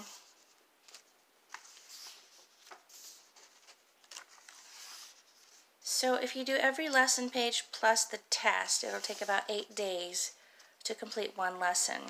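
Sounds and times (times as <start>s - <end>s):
paper pages being turned: 0.0s - 5.7s, 8.8s - 9.8s.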